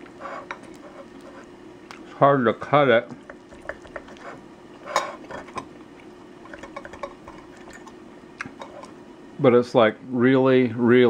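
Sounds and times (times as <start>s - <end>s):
fork scraping ceramic plate: 0.2s - 1.5s, 3.6s - 5.7s, 8.6s - 8.9s.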